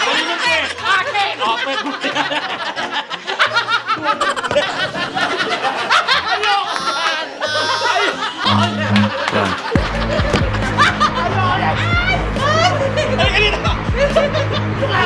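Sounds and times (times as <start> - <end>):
people laughing and shrieking: 0.0 - 15.0
background music with bass line: 7.5 - 15.0.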